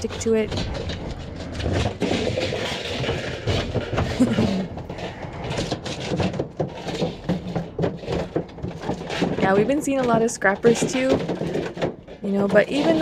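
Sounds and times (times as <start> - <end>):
sheet metal crumpling under boots: 0.0 - 13.0.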